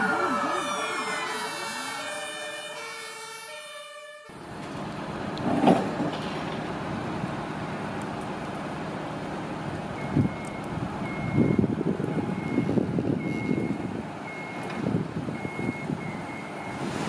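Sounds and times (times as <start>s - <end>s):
truck reversing alarm beeping: 0.0s - 4.5s, 9.9s - 17.0s.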